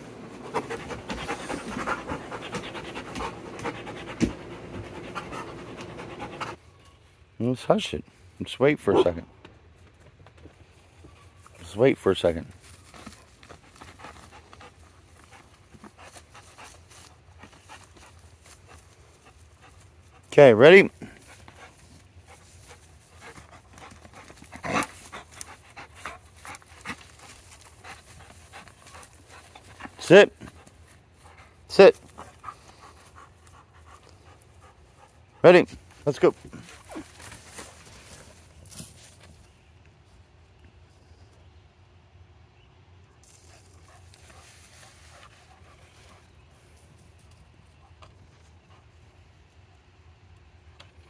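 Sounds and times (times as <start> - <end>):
dog panting: 0.1 - 6.6, 21.0 - 35.8.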